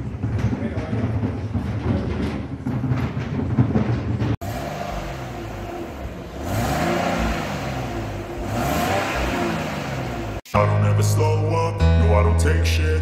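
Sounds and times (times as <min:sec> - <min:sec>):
car engine revving: 0:04.2 - 0:10.5.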